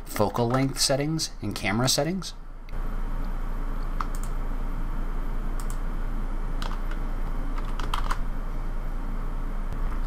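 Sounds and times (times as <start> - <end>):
steady low hum: 0.0 - 10.0
keyboard keys clicking: 6.6 - 7.0, 7.6 - 8.2.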